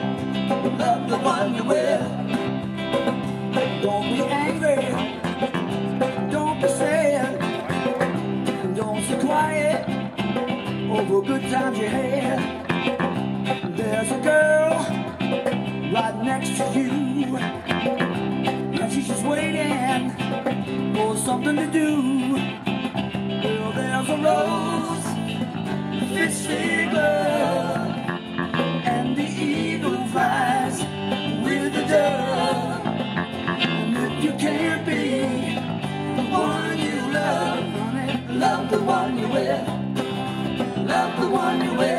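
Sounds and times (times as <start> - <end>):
person singing: 0.0 - 2.6, 3.5 - 9.9, 10.9 - 15.1, 15.9 - 18.0, 18.7 - 22.6, 23.4 - 41.9
live rock band playing: 0.0 - 41.9.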